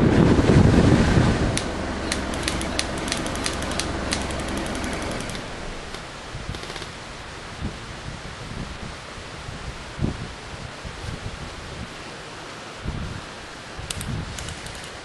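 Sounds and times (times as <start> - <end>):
wind rumble on microphone: 0.0 - 15.0
airsoft rifles firing: 2.0 - 7.0.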